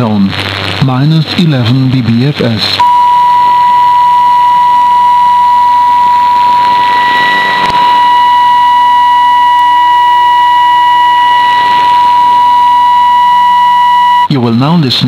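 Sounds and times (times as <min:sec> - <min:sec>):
radio static hiss: 0:00.0 - 0:14.3
steady test tone: 0:02.8 - 0:14.3.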